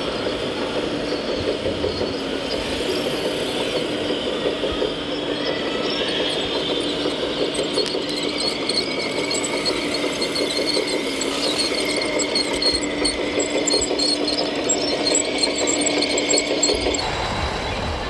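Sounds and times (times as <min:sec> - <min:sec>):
hydraulic pump buzzing whine: 0:05.8 - 0:17.1.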